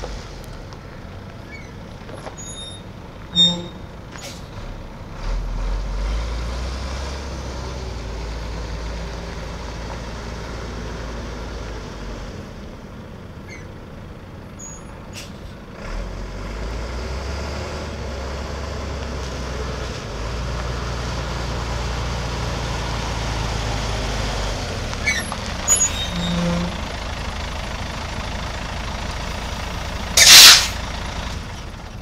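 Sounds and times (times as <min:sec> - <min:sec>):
brief squeaks and clicks: 0:01.5 - 0:04.5, 0:13.5 - 0:13.7, 0:25.0 - 0:26.8, 0:30.2 - 0:30.8
air brake hiss: 0:15.1 - 0:15.5, 0:30.2 - 0:30.8
truck engine running: 0:18.0 - 0:32.0.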